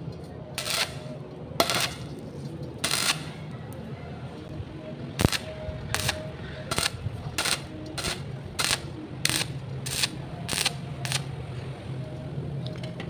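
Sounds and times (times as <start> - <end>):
welding arc crackling: 0.6 - 2.2, 2.8 - 3.4, 5.1 - 11.3.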